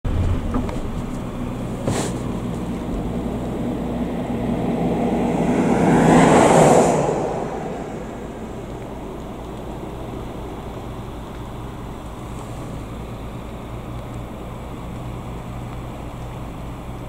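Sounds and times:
low engine hum: 0.0 - 17.0
vehicle passing by: 0.1 - 10.2.

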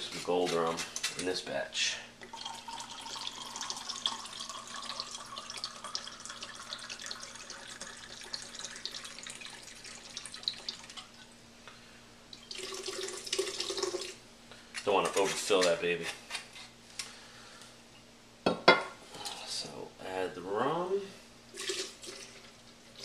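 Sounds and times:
liquid pouring into blender jar: 2.3 - 11.0, 12.5 - 14.2, 21.5 - 22.5
liquid pouring from bottle: 21.6 - 22.5.

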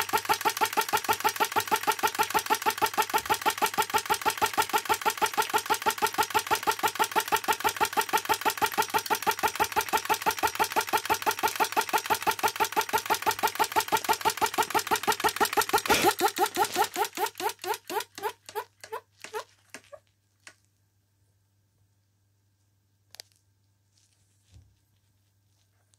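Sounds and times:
model pulse engine running: 0.0 - 19.9.

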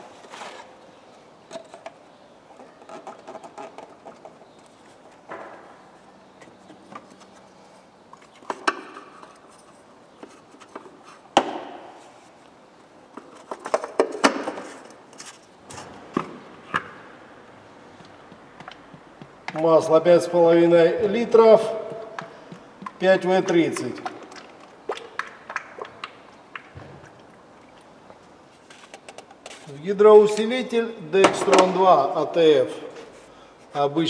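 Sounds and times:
tools and parts clicking and knocking: 1.5 - 5.6, 8.1 - 11.6, 13.1 - 15.4.

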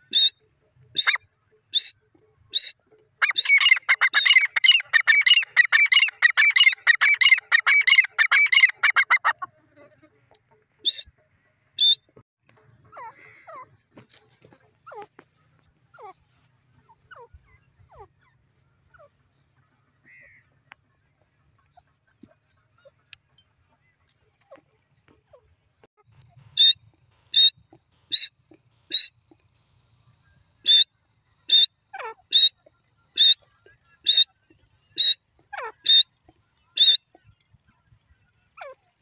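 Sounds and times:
faint bird chirps: 0.0 - 9.2
francolin calling: 1.0 - 9.4, 26.6 - 29.2.

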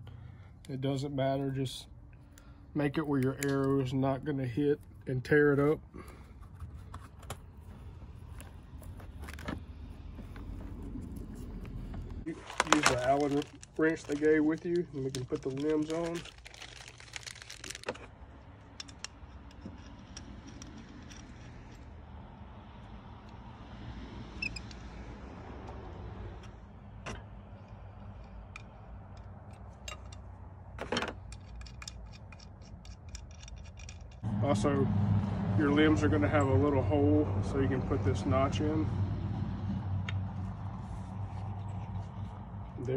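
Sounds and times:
light clicks and rustles: 6.0 - 21.9
small metal clicks and knocks: 17.6 - 21.9, 26.4 - 34.2.

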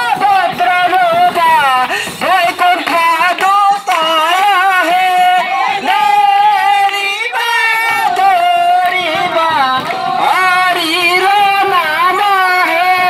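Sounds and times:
man singing through loudspeaker: 0.0 - 13.0.

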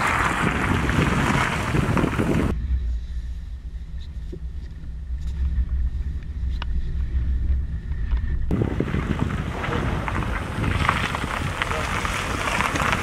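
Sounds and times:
car engine and road drone: 0.0 - 13.0
tyres hissing on wet asphalt: 8.5 - 13.0.

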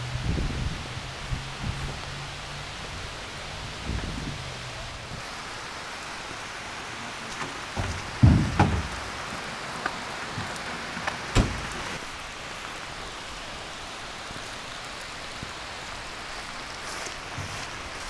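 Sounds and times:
steady rain falling: 0.0 - 18.0
dull thump: 7.8 - 9.1, 11.3 - 11.9.

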